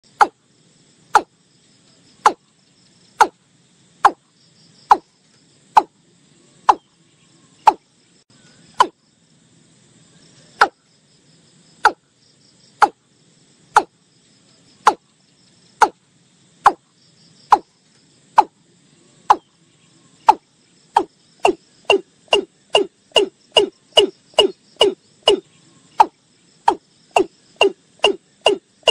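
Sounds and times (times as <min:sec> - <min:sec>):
insect chorus: 0:00.0 - 0:28.9
bird calling sharp notes: 0:21.0 - 0:28.9.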